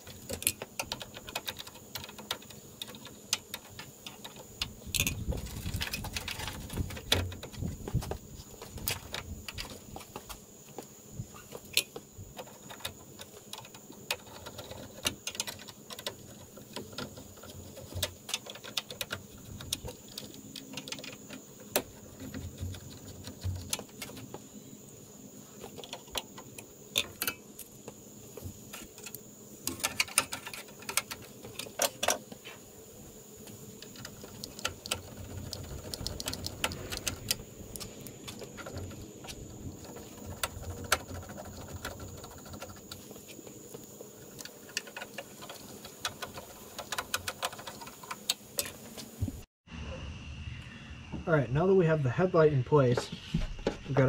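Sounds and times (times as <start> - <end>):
faint high-pitched tone: 49.7 - 54.0.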